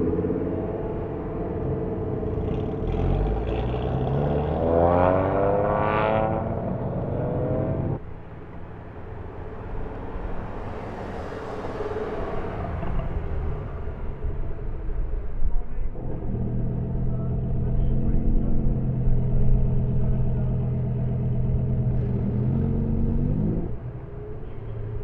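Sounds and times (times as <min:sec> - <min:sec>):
car engine accelerating: 0:00.0 - 0:08.5, 0:15.8 - 0:25.0
low rumble: 0:12.7 - 0:24.0.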